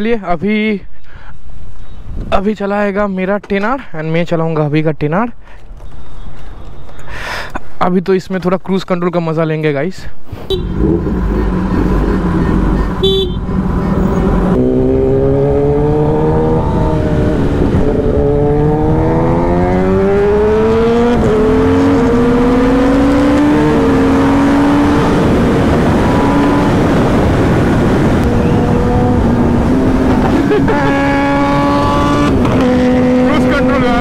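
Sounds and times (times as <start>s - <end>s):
motorcycle engine shifting gears: 10.5s - 33.8s.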